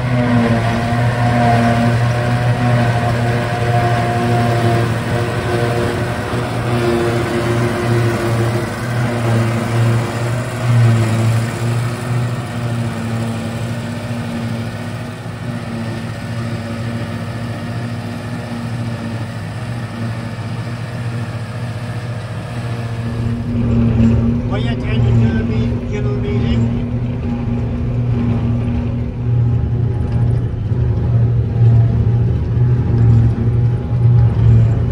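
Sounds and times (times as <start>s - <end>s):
forage harvester chopping grass: 0.0s - 26.5s.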